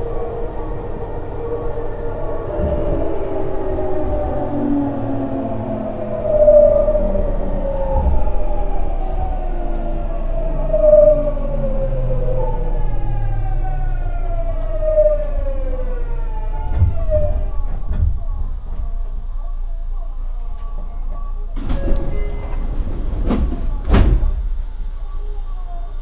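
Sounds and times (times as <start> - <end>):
train inverter whining: 0.0 - 26.0
low knocks of train: 16.6 - 19.3, 21.1 - 24.7.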